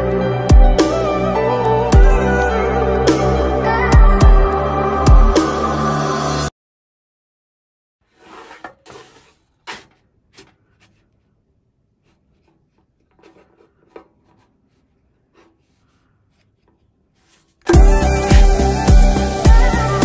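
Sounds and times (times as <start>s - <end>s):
spatula scraping on griddle: 8.0s - 11.3s, 12.0s - 17.6s.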